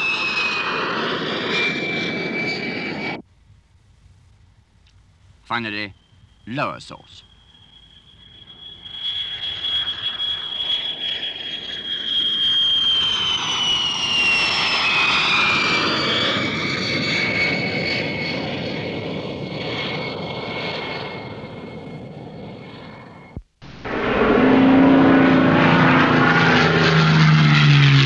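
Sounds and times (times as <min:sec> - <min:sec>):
jet engine rushing: 0:00.0 - 0:03.2, 0:05.5 - 0:28.0
high steady whistle: 0:05.6 - 0:16.2.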